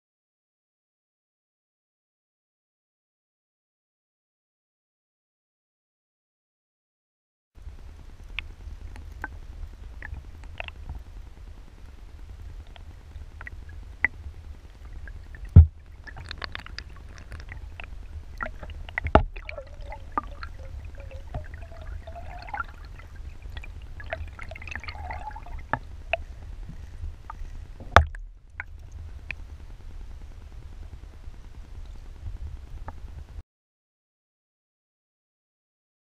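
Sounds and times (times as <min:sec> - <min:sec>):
water gurgling: 0:07.6 - 0:30.7
underwater low rumble: 0:07.6 - 0:33.4.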